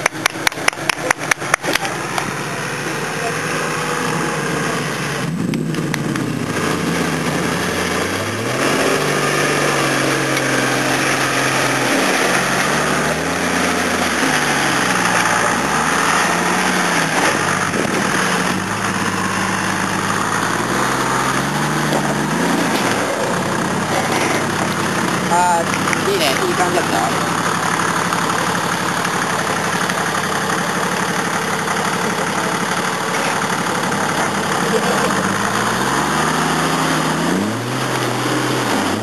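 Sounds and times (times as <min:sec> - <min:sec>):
engine revving under load: 0:00.0 - 0:39.0.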